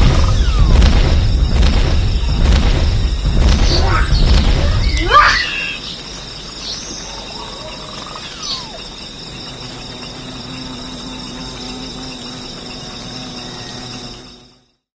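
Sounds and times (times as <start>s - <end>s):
insects chirring: 0.0s - 14.9s.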